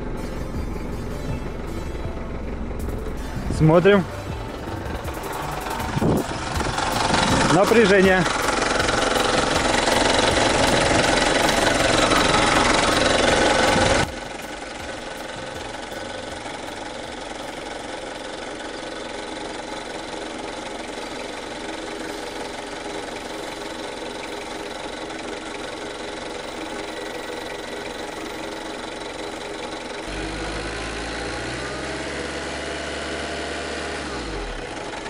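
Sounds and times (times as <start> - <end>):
deep low hum: 0.0 - 18.3
diesel engine idling: 0.0 - 35.0.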